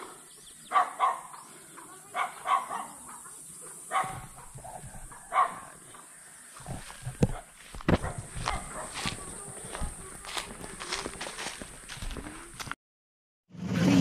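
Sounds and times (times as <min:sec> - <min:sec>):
dog barking: 0:00.7 - 0:01.4, 0:02.0 - 0:05.8, 0:07.3 - 0:09.9.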